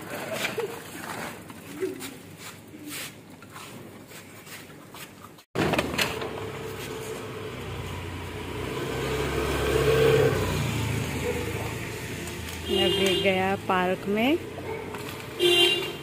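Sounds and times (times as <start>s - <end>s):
motor scooter passing: 5.8s - 15.4s.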